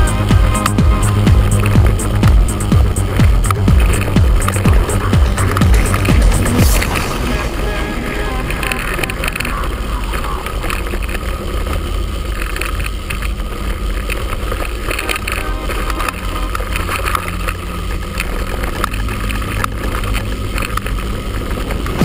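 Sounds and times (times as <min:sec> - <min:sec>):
bike rattling over stones: 0:00.0 - 0:07.1, 0:08.2 - 0:22.0
wind rumbling on microphone: 0:00.0 - 0:22.0.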